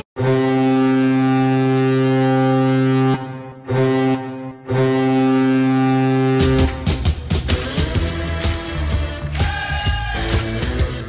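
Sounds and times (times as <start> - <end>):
arena goal horn blasts: 0.2 - 7.0.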